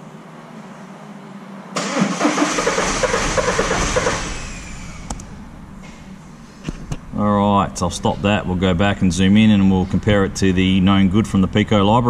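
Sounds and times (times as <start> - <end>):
diesel engine cranking: 1.8 - 5.4.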